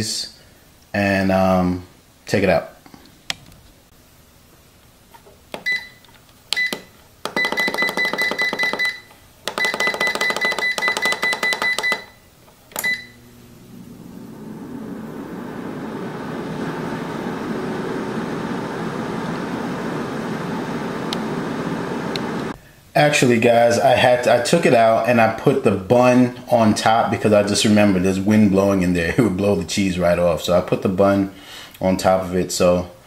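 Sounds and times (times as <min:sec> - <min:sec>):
air fryer button beeps: 0:05.6 - 0:12.2, 0:12.8 - 0:13.3
air fryer fan rushing: 0:12.7 - 0:22.6.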